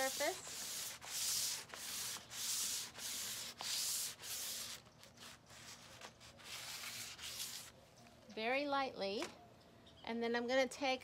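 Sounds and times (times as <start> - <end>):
sandpaper scraping paint: 0.0 - 7.7.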